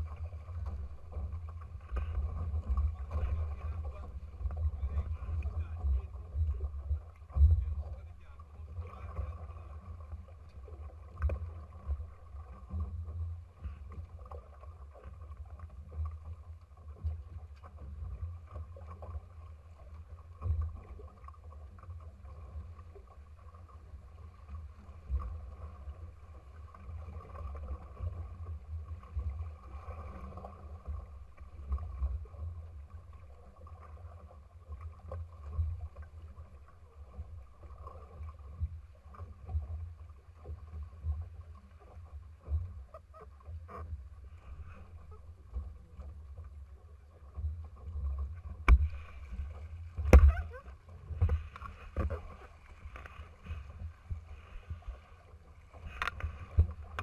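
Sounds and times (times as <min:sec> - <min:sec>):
water lapping against hull: 0:00.0 - 0:57.0
small knocks: 0:48.6 - 0:53.2.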